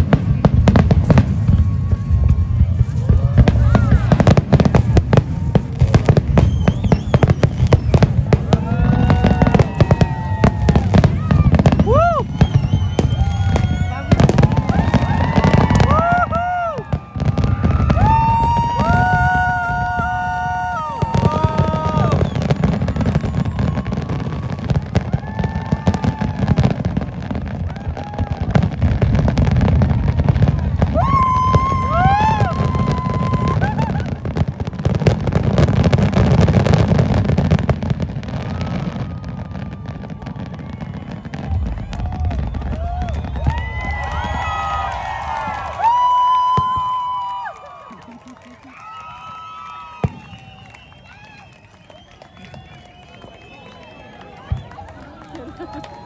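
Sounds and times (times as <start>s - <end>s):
fireworks bangs and crackles: 0.0s - 56.0s
faint whistles: 6.3s - 8.2s, 12.2s - 14.0s, 22.1s - 23.8s, 40.6s - 44.7s, 49.9s - 56.0s.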